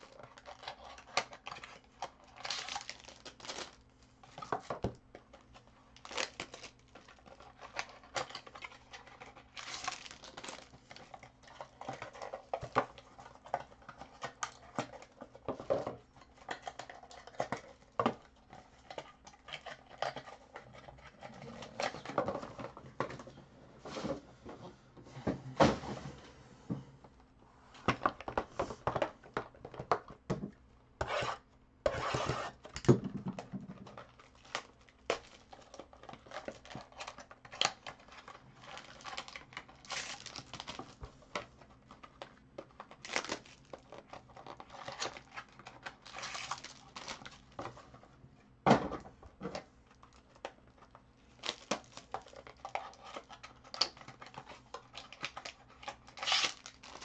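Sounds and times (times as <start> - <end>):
foil wrap crinkling and tearing: 0.0 - 3.8, 6.0 - 12.5, 34.0 - 41.0, 42.8 - 47.5, 51.3 - 57.0.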